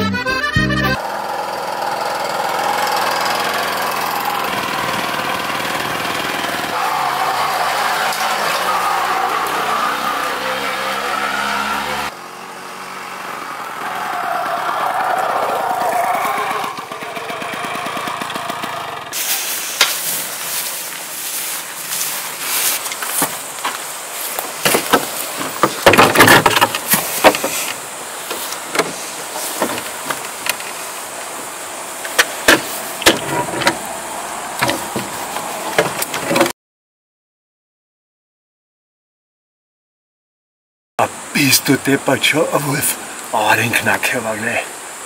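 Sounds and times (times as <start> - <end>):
moped engine running: 0.9 - 30.8
scraping and crackling: 19.1 - 30.9
rifle clicking on wooden rail: 24.4 - 29.0, 29.6 - 30.8, 32.0 - 33.9
knocks and clatter on wood: 24.4 - 30.7, 32.1 - 33.9, 34.6 - 36.5.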